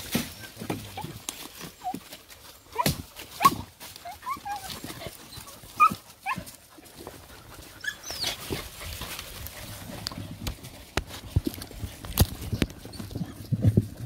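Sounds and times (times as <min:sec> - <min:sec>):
dogs whining and whimpering: 0:00.3 - 0:06.5, 0:07.6 - 0:08.6, 0:12.6 - 0:13.7.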